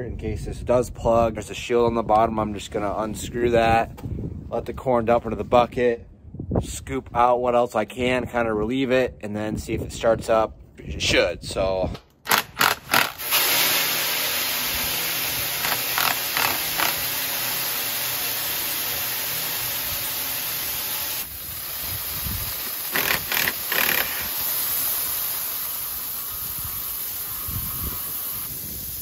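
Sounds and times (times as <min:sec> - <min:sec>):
grain pouring into metal bucket: 0:13.2 - 0:28.2.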